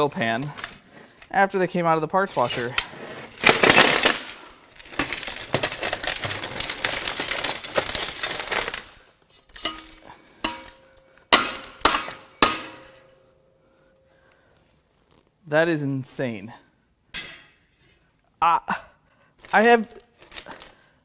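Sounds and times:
metal fragments clattering onto steel: 0:03.4 - 0:12.9.

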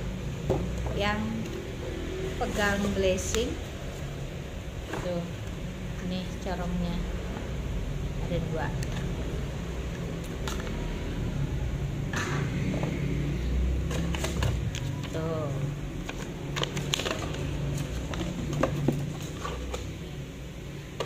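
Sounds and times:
steady low hum: 0:00.0 - 0:21.0
plastic clicks and paper rustles: 0:13.8 - 0:15.2, 0:16.0 - 0:20.1.

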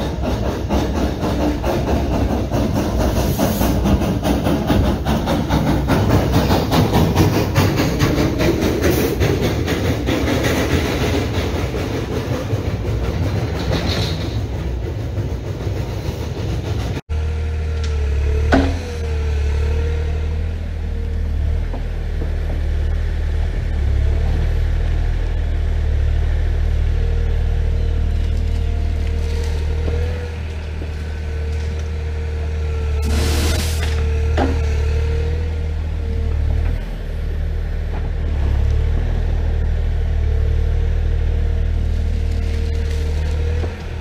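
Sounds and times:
steam hissing: 0:00.0 - 0:17.0, 0:29.5 - 0:36.0
diesel engine humming: 0:00.0 - 0:44.0.

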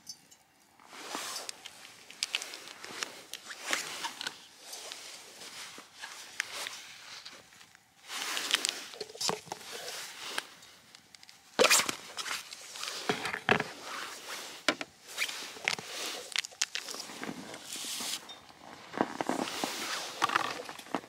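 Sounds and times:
camp gear clicks and knocks: 0:01.2 - 0:05.1, 0:06.0 - 0:13.8, 0:14.6 - 0:21.0
jacket rustling: 0:09.6 - 0:21.0.

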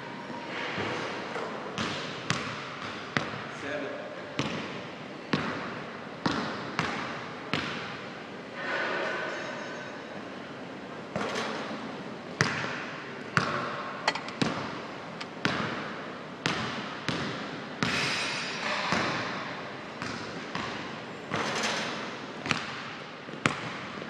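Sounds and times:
basketball bouncing on wooden floor: 0:06.2 - 0:07.8.

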